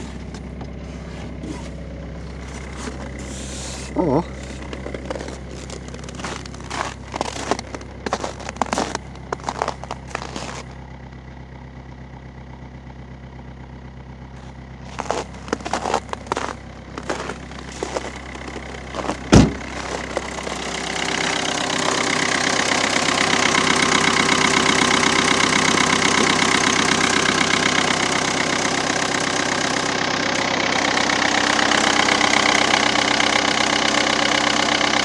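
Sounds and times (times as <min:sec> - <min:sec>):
diesel engine idling: 0:00.0 - 0:35.0
loud thump: 0:19.3 - 0:19.7.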